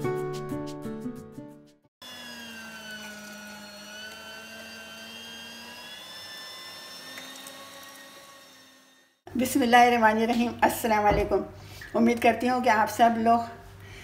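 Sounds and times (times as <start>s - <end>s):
electric meat grinder motor whine: 2.0s - 9.2s.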